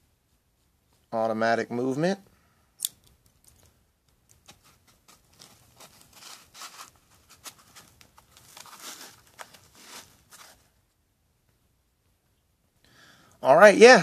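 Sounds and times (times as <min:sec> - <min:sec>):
rustling scrapes on foam: 0:04.5 - 0:10.8.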